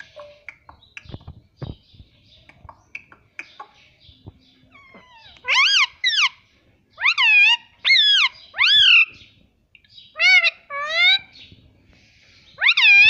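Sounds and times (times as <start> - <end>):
parakeet squawking: 4.7 - 6.4, 7.0 - 9.2, 10.2 - 11.4, 12.6 - 13.0.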